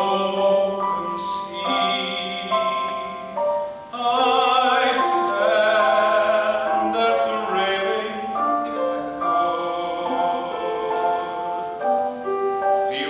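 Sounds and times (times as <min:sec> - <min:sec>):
man singing into a microphone: 0:00.0 - 0:03.3, 0:03.9 - 0:11.7, 0:12.8 - 0:13.0
instrumental accompaniment: 0:00.0 - 0:13.0.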